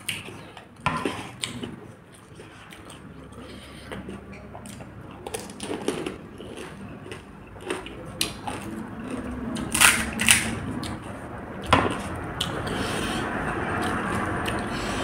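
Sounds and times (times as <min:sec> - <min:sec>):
chewing crisp food: 0:00.0 - 0:15.0
fried shells cracking: 0:04.8 - 0:11.0.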